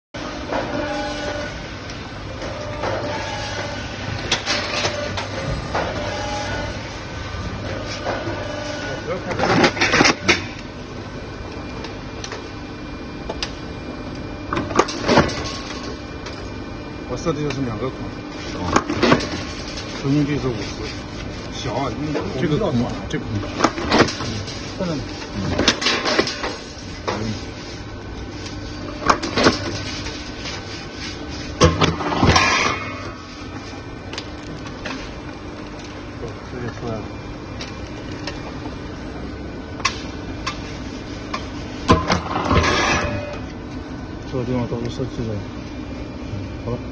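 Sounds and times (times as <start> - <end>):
machine humming: 0.2 - 46.9.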